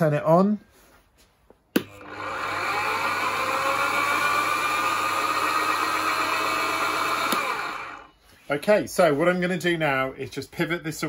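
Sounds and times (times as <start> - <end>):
lathe motor whining: 1.8 - 8.1.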